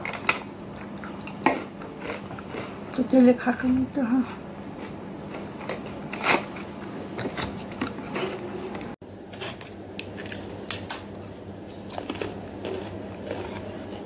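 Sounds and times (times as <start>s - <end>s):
crunching potato chips: 11.8s - 14.0s.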